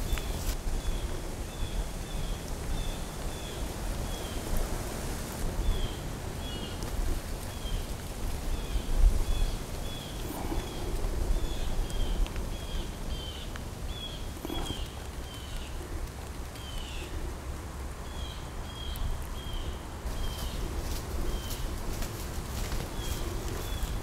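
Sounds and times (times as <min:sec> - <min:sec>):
faint rustles: 0:02.4 - 0:18.0, 0:19.1 - 0:24.0.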